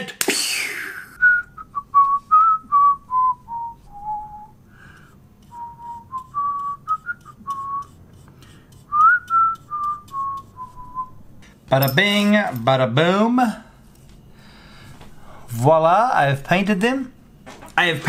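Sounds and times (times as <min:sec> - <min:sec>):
man whistling a tune: 0:01.0 - 0:04.6, 0:05.5 - 0:08.0, 0:08.9 - 0:11.2.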